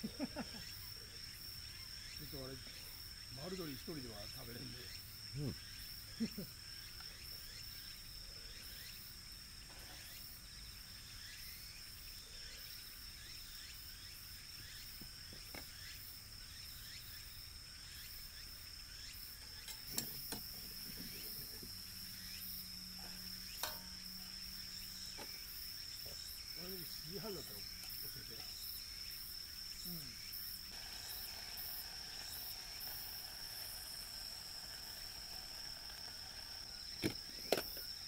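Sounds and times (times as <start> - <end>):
high-pitched insect trill: 0.0 - 38.0
metal tongs clanking on grill: 19.4 - 20.5, 23.5 - 24.0.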